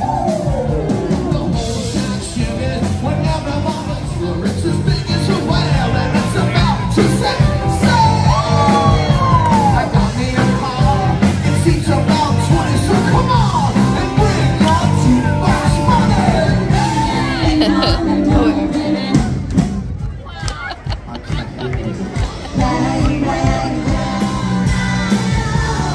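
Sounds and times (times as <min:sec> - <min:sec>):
person singing: 0:00.0 - 0:19.6
electric guitar: 0:00.0 - 0:19.7
bass guitar: 0:00.0 - 0:25.9
drums: 0:00.0 - 0:25.9.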